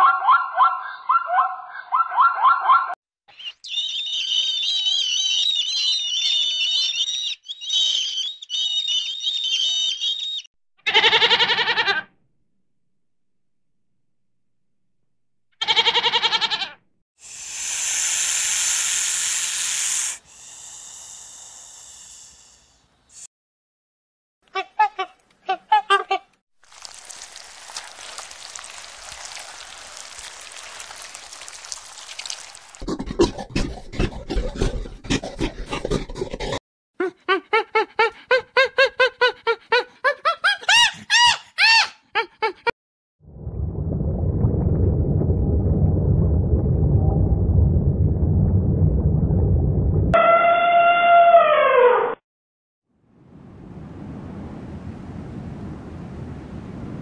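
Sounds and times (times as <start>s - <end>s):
goat bleating: 10.8s - 12.1s, 15.6s - 16.8s
underwater crackling hiss: 17.2s - 23.3s, 26.6s - 32.8s.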